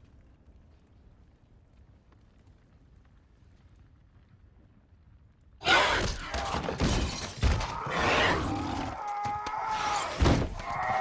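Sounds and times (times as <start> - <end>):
glass shattering crash: 6.5 - 7.7.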